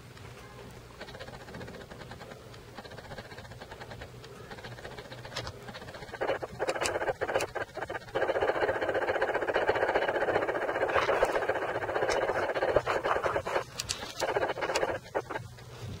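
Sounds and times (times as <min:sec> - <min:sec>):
cat chewing and licking: 0:01.0 - 0:15.6
rushing noise: 0:06.0 - 0:13.6.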